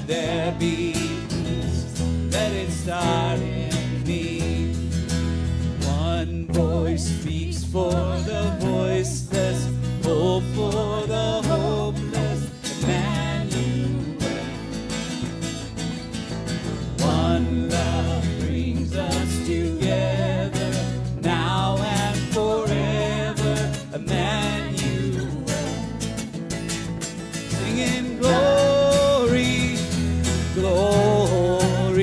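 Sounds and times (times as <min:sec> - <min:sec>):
acoustic guitars: 0:00.0 - 0:32.0
electric bass: 0:00.0 - 0:32.0
woman singing: 0:06.4 - 0:14.7, 0:17.0 - 0:26.1, 0:27.6 - 0:29.5.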